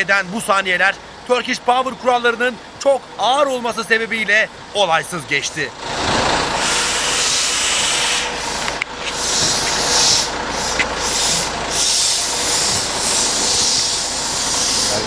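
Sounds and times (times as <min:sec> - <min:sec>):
loud rushing hiss: 0:06.0 - 0:15.0.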